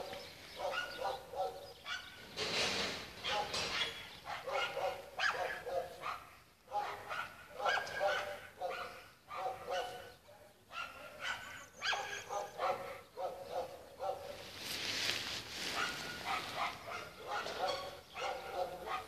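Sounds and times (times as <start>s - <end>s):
dog barking: 0.0s - 2.2s, 3.2s - 14.5s, 15.7s - 19.0s.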